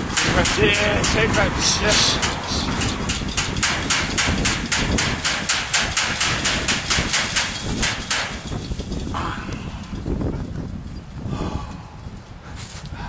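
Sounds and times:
chain-link fence rattling: 0:00.0 - 0:10.0.

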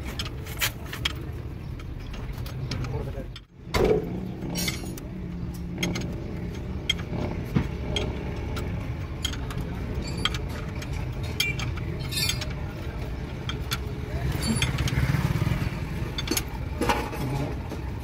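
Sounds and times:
low engine rumble: 0:00.0 - 0:18.0
hand tool clinking on metal: 0:08.0 - 0:12.7, 0:13.4 - 0:15.0.

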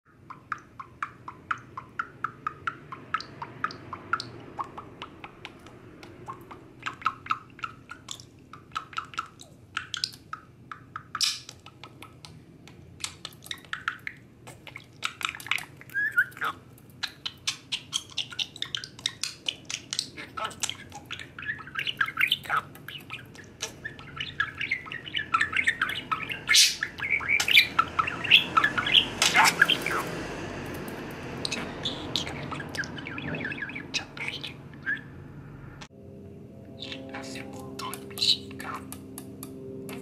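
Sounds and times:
budgerigar chattering and clicking: 0:00.1 - 0:30.1, 0:37.8 - 0:40.0
bird chirps: 0:13.0 - 0:30.1, 0:31.4 - 0:35.2, 0:36.7 - 0:40.0.

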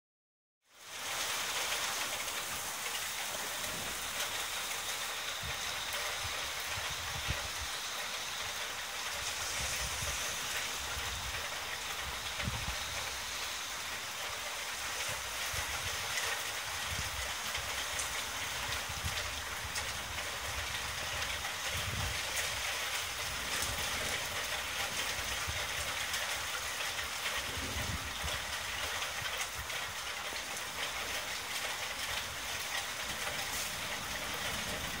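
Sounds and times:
steady rain hiss: 0:00.6 - 0:35.0
low thunder rumbles: 0:23.2 - 0:26.3, 0:27.2 - 0:29.3, 0:33.1 - 0:35.0.

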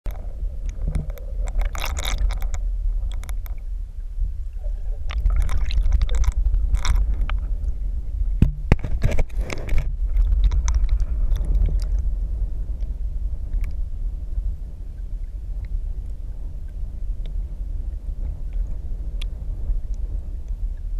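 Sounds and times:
muffled underwater river rumble: 0:00.1 - 0:20.9
sharp knocks: 0:08.4 - 0:09.3
camera scraping on rocks: 0:08.7 - 0:11.1.

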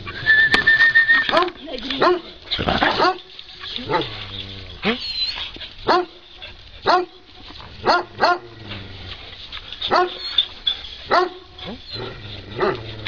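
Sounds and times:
dog barking: 0:01.3 - 0:03.3, 0:05.8 - 0:06.2, 0:06.8 - 0:07.2, 0:07.8 - 0:08.5, 0:09.9 - 0:10.2, 0:11.1 - 0:11.5.

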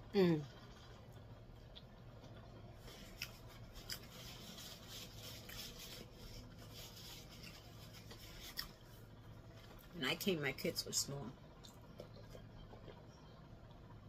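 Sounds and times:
paper napkin rubbing and rustling: 0:02.8 - 0:09.0.

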